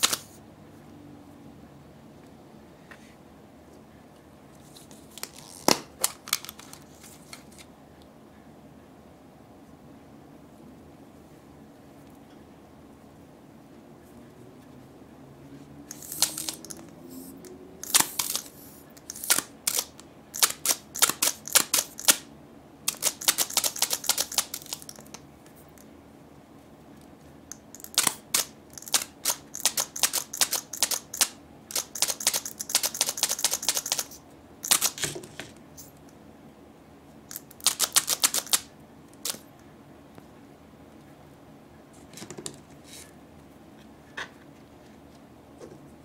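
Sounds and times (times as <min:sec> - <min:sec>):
fingernails clicking on toys: 0:00.0 - 0:00.3, 0:15.9 - 0:22.3, 0:22.9 - 0:25.2, 0:27.5 - 0:35.1, 0:37.3 - 0:39.4.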